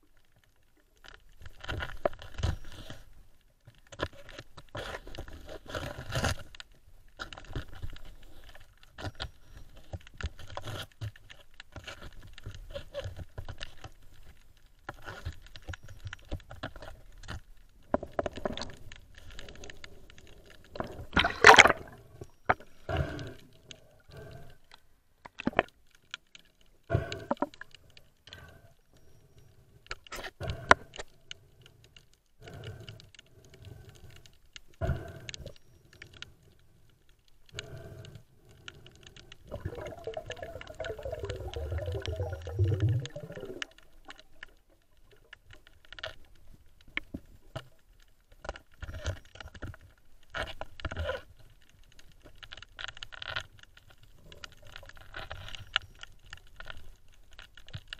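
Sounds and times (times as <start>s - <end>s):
underwater clicks knocks and scrapes: 0.5s - 3.1s, 3.7s - 28.6s, 45.2s - 57.9s
underwater rush: 18.3s - 24.5s, 39.4s - 45.4s.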